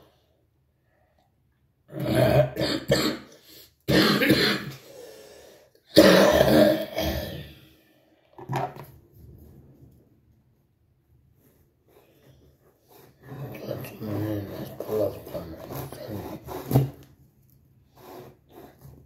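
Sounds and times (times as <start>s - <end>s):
man clearing his throat: 2.0s - 4.8s, 5.9s - 7.6s
man coughing: 2.0s - 4.8s, 5.9s - 7.6s.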